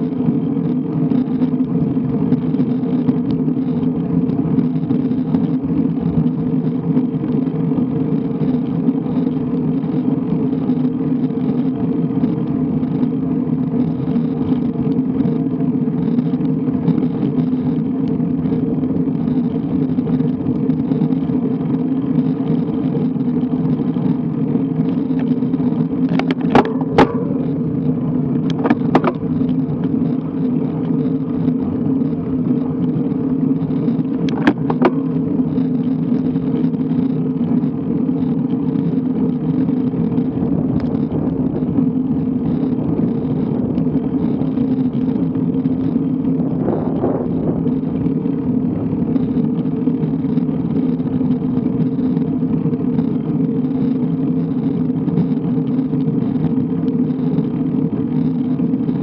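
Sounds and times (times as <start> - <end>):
road rumble: 0.0 - 59.0
wind: 0.0 - 59.0.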